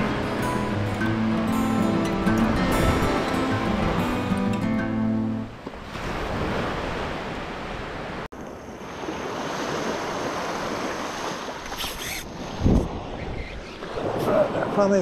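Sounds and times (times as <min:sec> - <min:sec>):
small waves washing on shore: 0:05.4 - 0:15.0
wind on microphone: 0:09.6 - 0:14.8.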